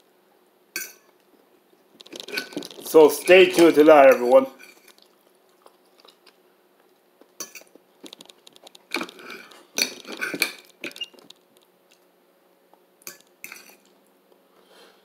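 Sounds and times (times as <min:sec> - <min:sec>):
cutlery scraping and clinking on plate: 0:08.9 - 0:11.2.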